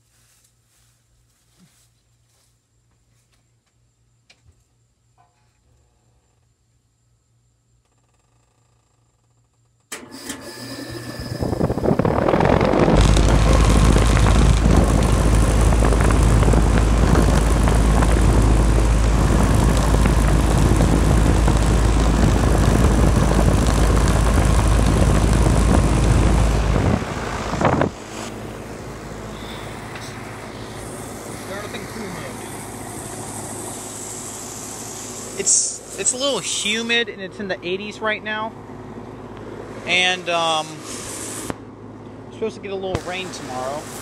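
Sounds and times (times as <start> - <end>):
heat pump clunk: 9.9 - 11.9
heat pump running: 9.9 - 44.0.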